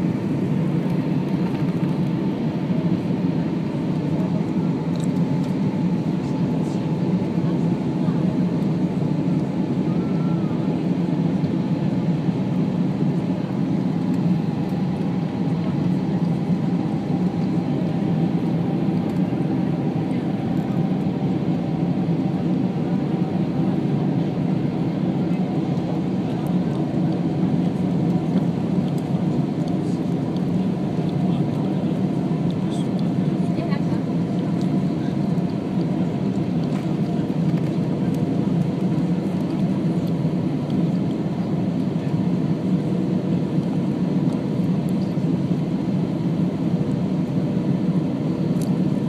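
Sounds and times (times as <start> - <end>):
jet engines rumbling: 0.0 - 49.0.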